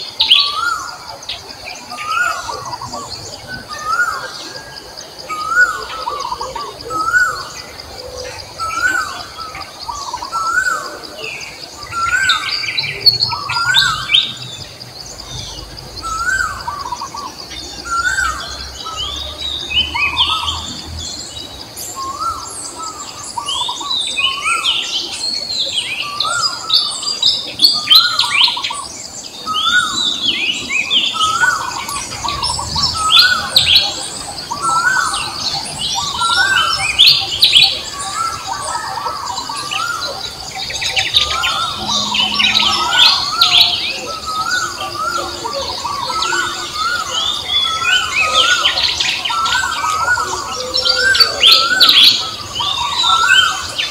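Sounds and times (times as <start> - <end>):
birds chirping: 0.0 - 53.9
high-pitched hum: 41.0 - 44.3.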